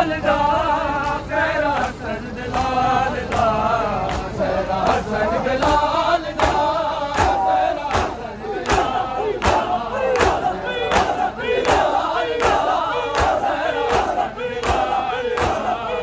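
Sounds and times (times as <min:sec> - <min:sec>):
men chanting in unison: 0:00.0 - 0:16.0
chest-beating slaps: 0:06.4 - 0:15.7.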